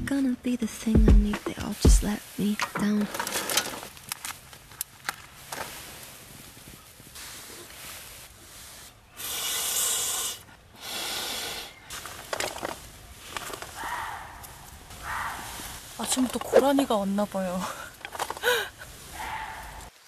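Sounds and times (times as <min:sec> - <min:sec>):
breath blown through blow pipe: 0:09.2 - 0:11.8.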